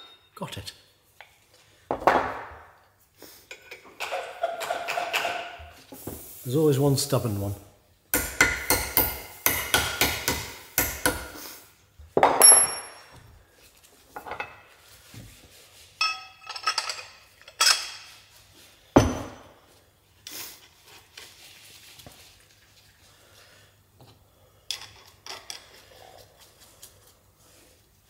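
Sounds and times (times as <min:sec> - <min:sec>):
hammer striking metal: 0:08.2 - 0:11.4.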